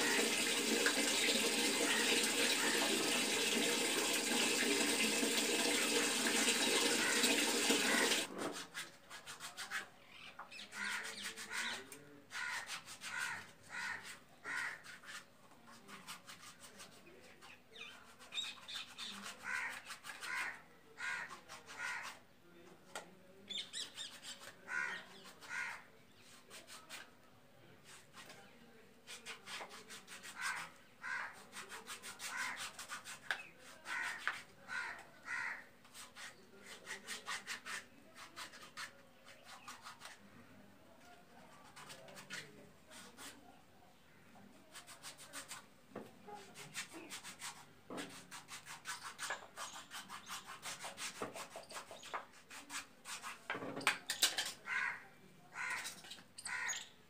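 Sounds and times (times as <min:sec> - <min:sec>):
water running from a tap: 0:00.0 - 0:08.3
foot file scrubbing skin: 0:07.8 - 0:09.9, 0:10.6 - 0:20.6, 0:26.3 - 0:27.1, 0:29.0 - 0:34.5, 0:35.8 - 0:40.2, 0:41.6 - 0:43.4, 0:44.7 - 0:45.7, 0:46.4 - 0:53.5
birds calling: 0:55.6 - 0:57.0.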